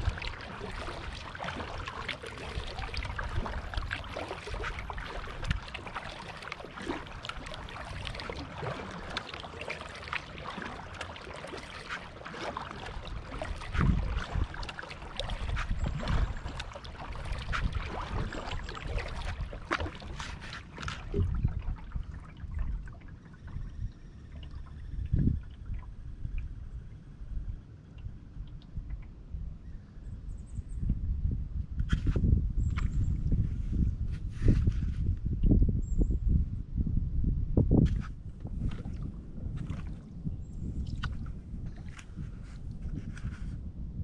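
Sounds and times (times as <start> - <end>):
paddle splashing water: 0.0 - 25.9, 37.9 - 43.6.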